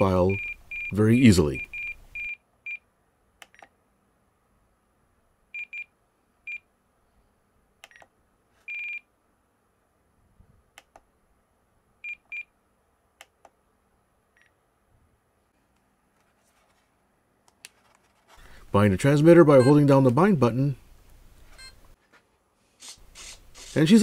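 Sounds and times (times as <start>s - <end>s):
soft clicks: 7.8s - 8.1s, 10.8s - 11.1s.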